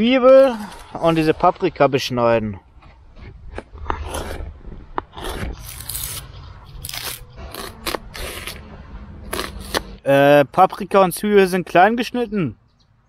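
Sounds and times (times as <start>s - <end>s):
knife cutting on plastic board: 3.2s - 8.6s.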